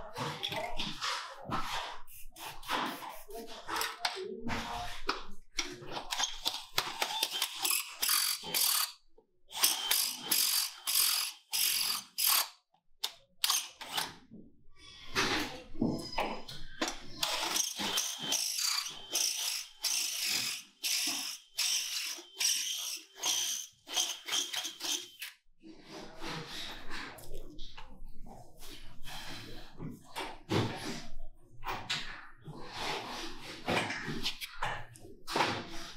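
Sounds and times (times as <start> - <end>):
cordless drill boring into steel: 9.5 - 12.5, 17.2 - 25.3.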